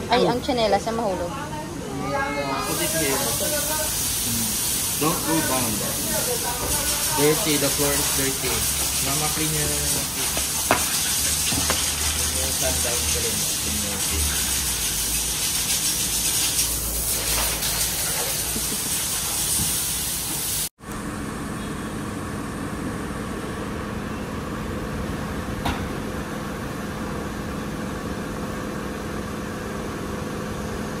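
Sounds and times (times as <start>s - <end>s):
loud steady hiss: 2.6s - 20.7s.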